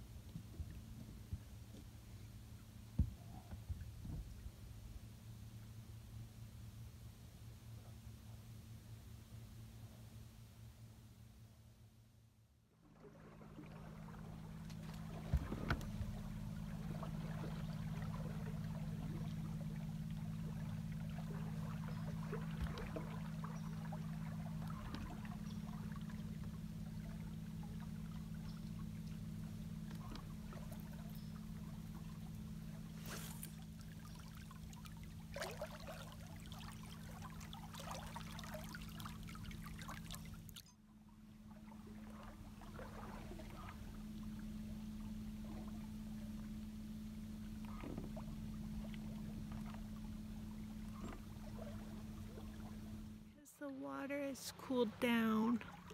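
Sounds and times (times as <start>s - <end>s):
outboard motor humming: 0.0s - 55.9s
water washing past hull: 12.7s - 55.9s.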